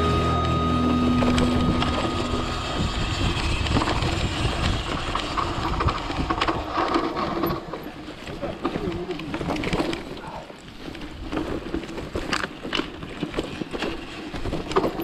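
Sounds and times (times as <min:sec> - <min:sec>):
wind noise on microphone: 0:00.0 - 0:07.7
bike rattling over bumps: 0:00.0 - 0:15.0
bike tyres on dirt and leaves: 0:00.0 - 0:15.0.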